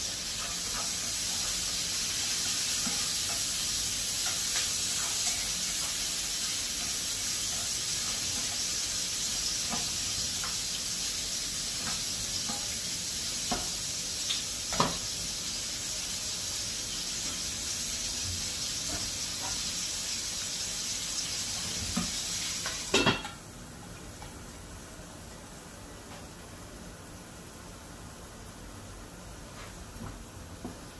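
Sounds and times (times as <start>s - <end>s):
vegetables sizzling in a frying pan: 0.0s - 25.7s
glass lid clattering onto pan: 22.9s - 23.4s.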